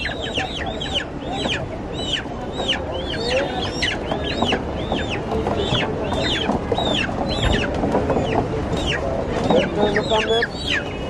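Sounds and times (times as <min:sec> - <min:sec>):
chickens calling: 0:00.0 - 0:11.0
background clatter: 0:02.5 - 0:10.1.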